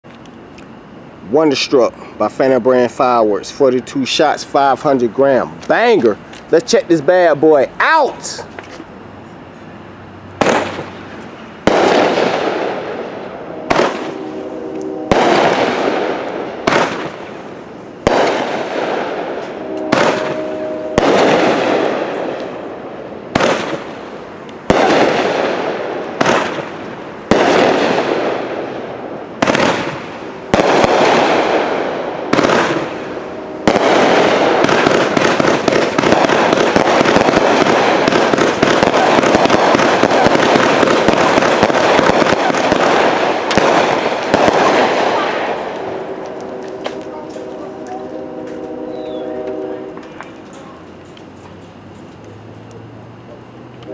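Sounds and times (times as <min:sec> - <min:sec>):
firework shots banging: 0:10.4 - 0:52.1.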